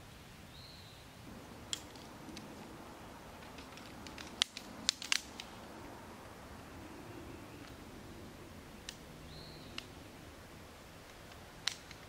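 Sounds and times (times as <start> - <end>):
camping gear ticks and clicks: 1.3 - 6.4, 7.6 - 7.9, 8.8 - 10.2, 10.8 - 12.0.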